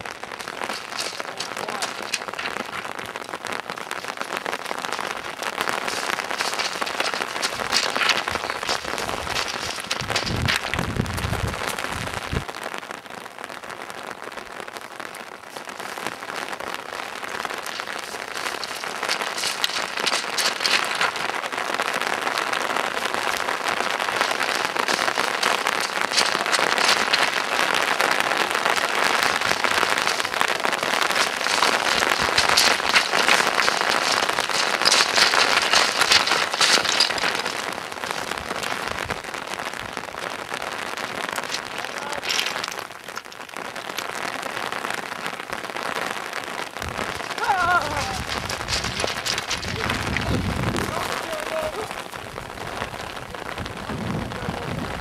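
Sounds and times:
rain pattering: 0.0 - 55.0.

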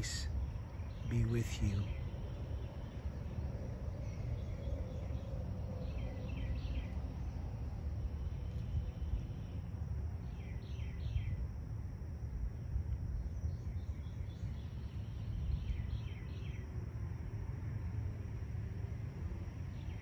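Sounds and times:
faint bird chirps: 0.0 - 7.1, 8.1 - 11.4, 12.6 - 16.6
steady low rumble: 0.0 - 10.4
songbird singing: 0.0 - 11.6, 12.4 - 18.2, 19.4 - 20.0.

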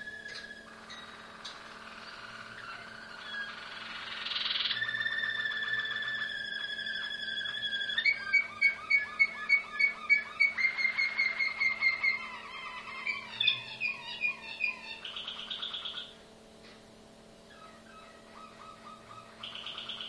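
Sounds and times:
canary singing trills: 0.0 - 16.3, 17.4 - 20.0.

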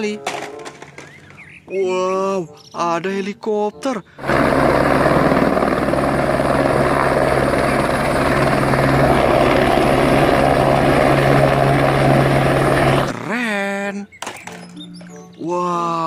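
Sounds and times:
helicopter rotor chop: 4.2 - 13.2.

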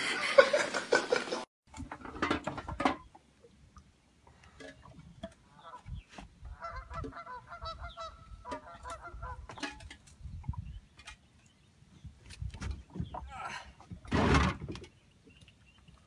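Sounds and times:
goose-like honking calls: 6.5 - 9.5.

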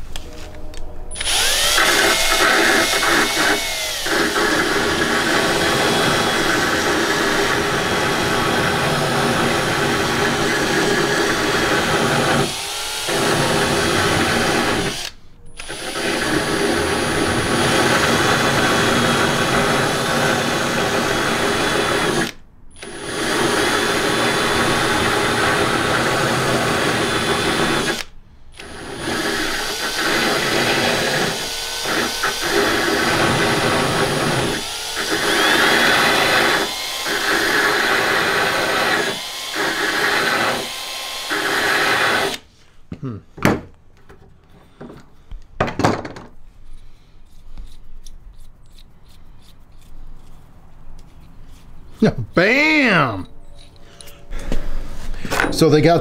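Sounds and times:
electric drill cutting bolt threads: 1.1 - 42.5.

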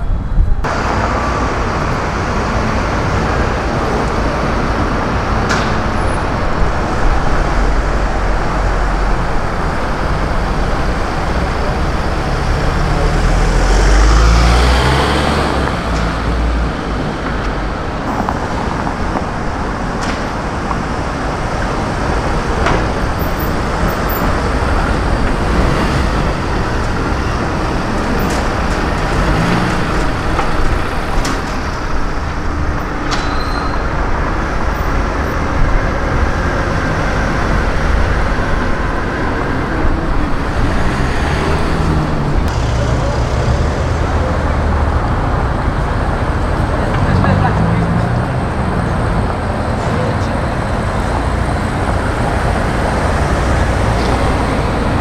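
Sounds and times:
cars driving past: 0.0 - 55.0
vehicle passing close: 0.6 - 33.0.

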